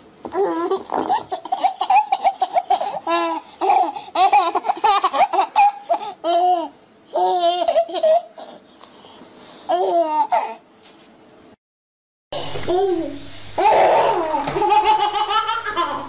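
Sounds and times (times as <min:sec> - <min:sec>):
baby laughing: 0:00.3 - 0:08.6, 0:13.6 - 0:16.0.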